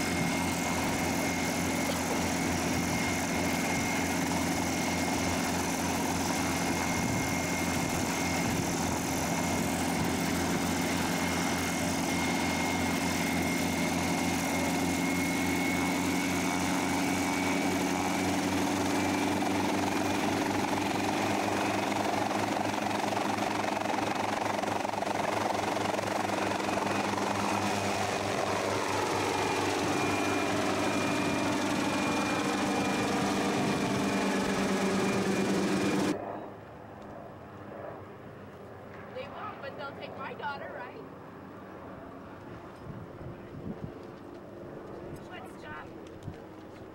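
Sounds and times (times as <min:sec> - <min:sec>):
helicopter engine and rotor: 0:00.0 - 0:46.9.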